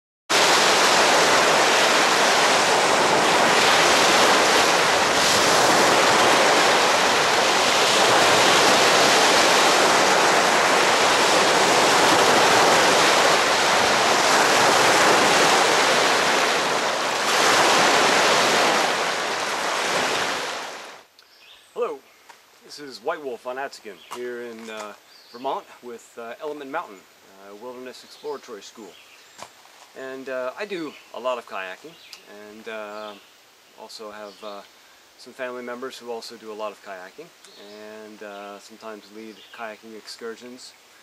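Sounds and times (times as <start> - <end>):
waves breaking on pebble shore: 0.3 - 21.0
wind buffeting microphone: 0.4 - 20.9.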